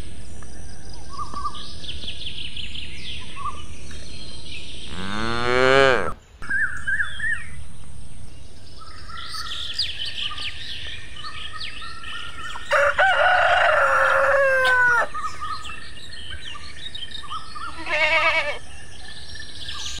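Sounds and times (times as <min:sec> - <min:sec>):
bird chirps: 0:06.1 - 0:12.9, 0:14.0 - 0:20.0
rooster crowing: 0:12.7 - 0:15.2
quavering bleat: 0:17.7 - 0:18.6.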